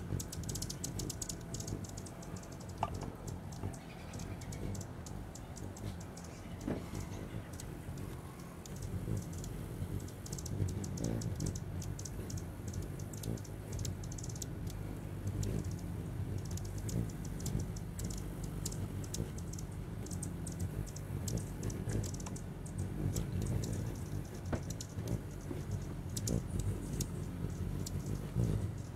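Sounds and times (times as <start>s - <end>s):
hummingbird chip calls: 0.0s - 28.9s
hummingbird wings humming: 0.0s - 28.9s.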